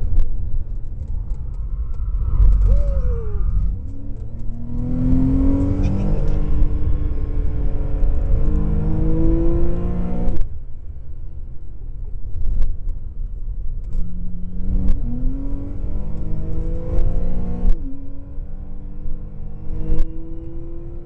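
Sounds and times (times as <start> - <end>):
car engine revving: 1.0 - 10.4, 13.9 - 21.0.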